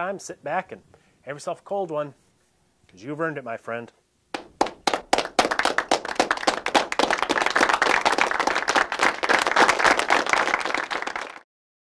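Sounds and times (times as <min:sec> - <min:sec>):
crowd applause: 0:04.6 - 0:11.5.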